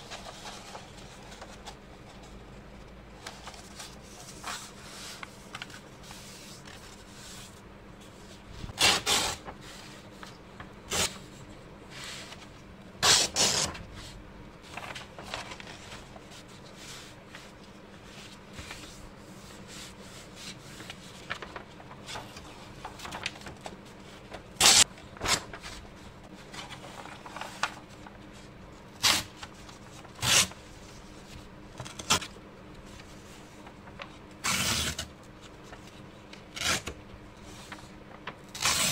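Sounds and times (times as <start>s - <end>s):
faint steady hum: 0.0s - 38.9s
paper rustling and crinkling: 0.0s - 38.9s
paper tearing: 8.8s - 9.5s, 10.9s - 11.2s, 13.0s - 13.7s, 24.6s - 25.5s, 34.4s - 35.1s, 36.5s - 37.0s, 38.5s - 38.9s.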